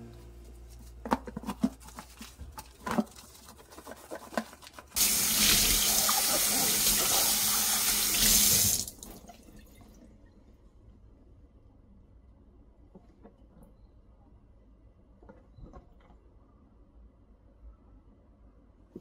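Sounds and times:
dishcloth scrubbing plastic: 0.3 - 7.4.

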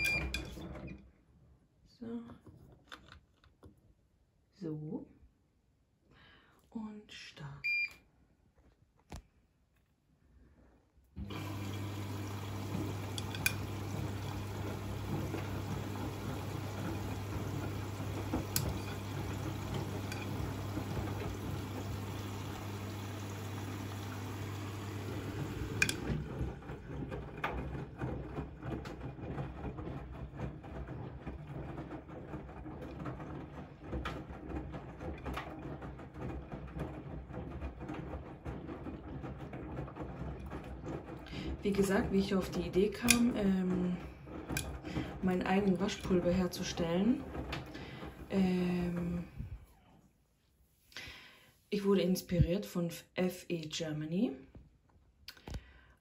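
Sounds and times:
water rushing into washing machine: 0.0 - 1.0, 11.2 - 49.8
water sloshing in drum: 11.2 - 49.6
laundry tumbling: 11.2 - 49.8
washing machine click: 11.3 - 26.6.

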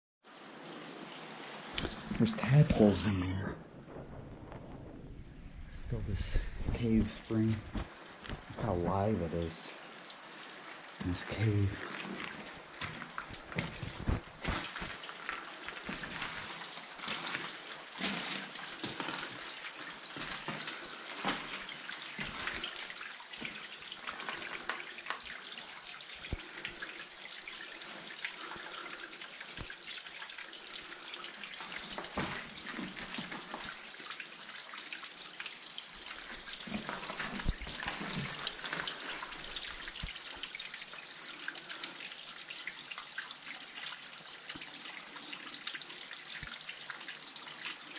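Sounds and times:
water trickling: 0.3 - 4.4, 5.0 - 47.9
water drops dripping: 18.6 - 47.9.

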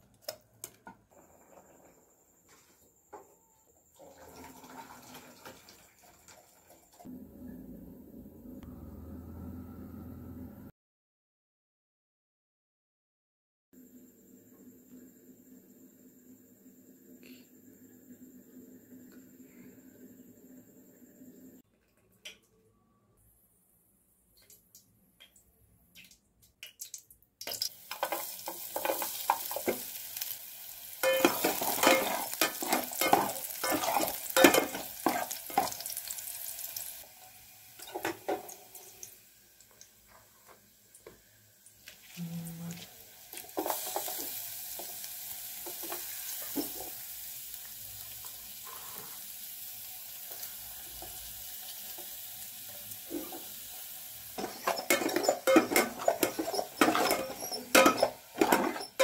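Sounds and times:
garlic sizzling in hot oil: 27.4 - 59.0
spoon stirring and scraping pot: 27.9 - 29.8, 31.0 - 35.9, 54.4 - 59.0.

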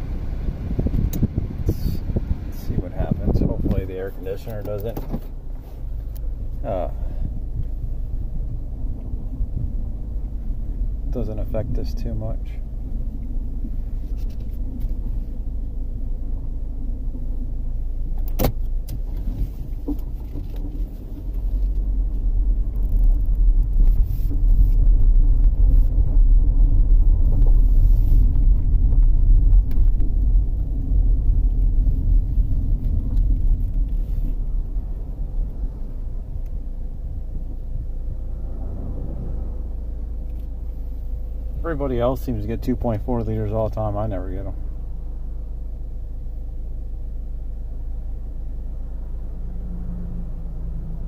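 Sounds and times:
car road and engine noise: 0.0 - 51.0
sharp click: 18.2 - 19.0.

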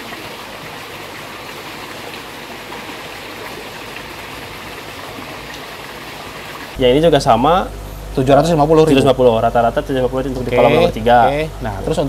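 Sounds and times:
water flowing and splashing: 0.0 - 6.8.

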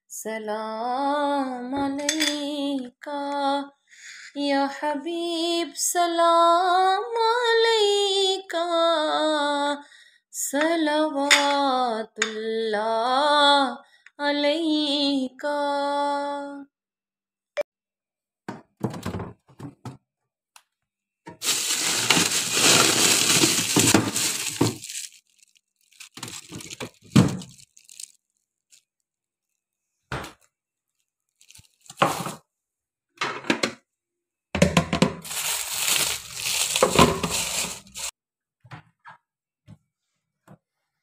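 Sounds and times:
plastic bag crinkling: 21.4 - 29.0, 31.0 - 32.4, 35.2 - 38.1.

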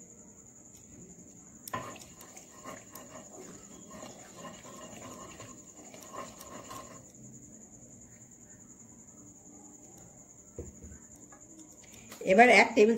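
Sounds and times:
faint steady high whine: 0.0 - 12.9
spatula scraping oil in a pan: 1.7 - 7.2.

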